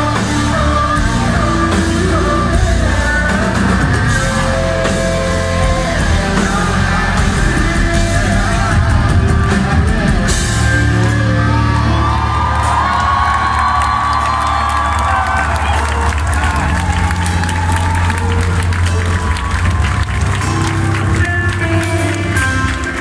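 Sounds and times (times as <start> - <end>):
person singing: 0.0 - 14.6
live metal band playing: 0.0 - 23.0.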